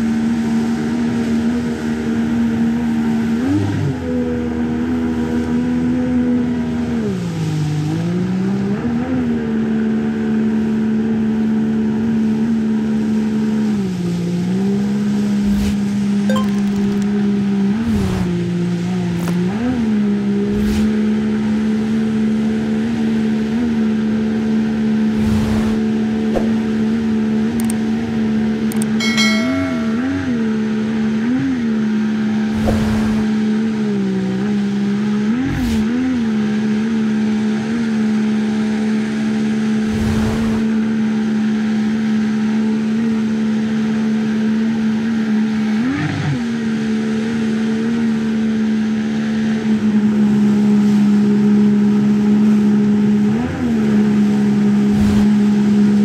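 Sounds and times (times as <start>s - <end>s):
outboard motor running hard: 31.3s - 56.0s.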